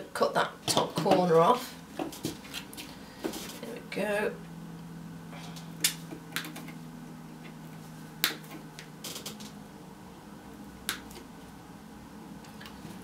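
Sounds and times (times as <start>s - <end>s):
wire cutters snipping wire: 5.5s - 6.8s.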